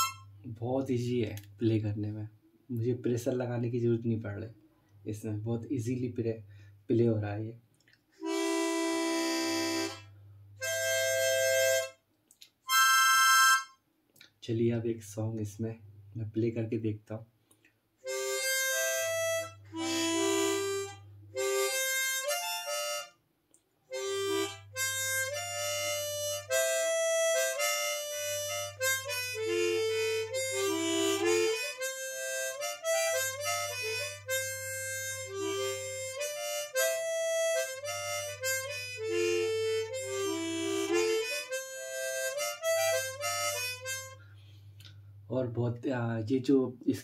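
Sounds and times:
chromatic harmonica melody: 0.0s - 0.5s, 8.2s - 12.0s, 12.6s - 13.9s, 18.0s - 23.2s, 23.8s - 45.0s.

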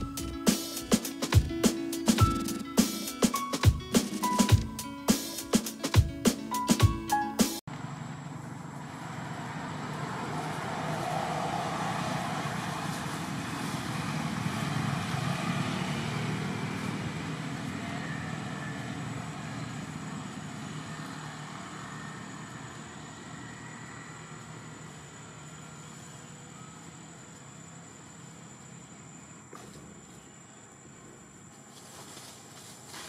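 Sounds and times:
passing motor vehicle: 7.7s - 28.9s.

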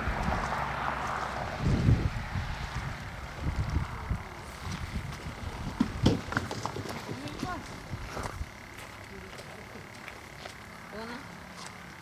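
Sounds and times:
wind buffeting microphone: 1.3s - 8.7s.

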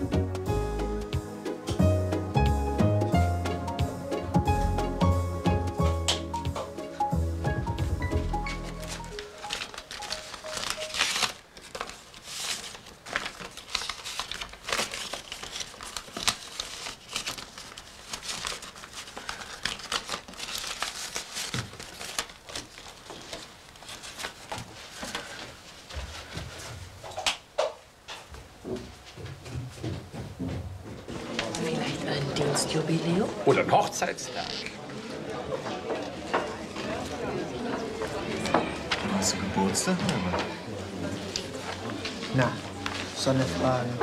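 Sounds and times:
paper crinkling and rustling: 8.4s - 27.1s, 41.2s - 44.0s.

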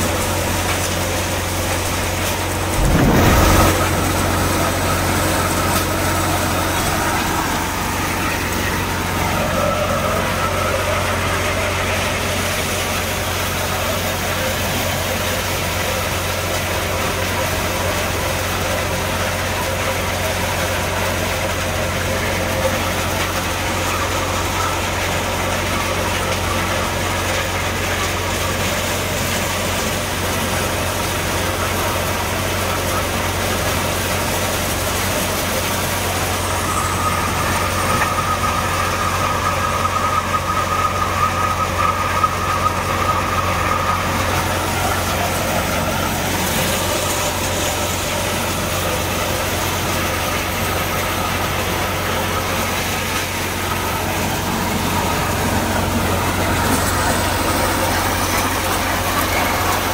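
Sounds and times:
kernels streaming into sack: 0.0s - 8.3s
thresher machine humming and rattling: 0.0s - 59.9s.

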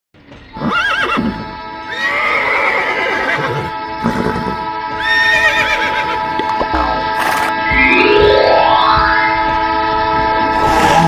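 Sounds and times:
horse whinnying: 0.6s - 6.2s
background music with held tones: 1.2s - 11.0s.

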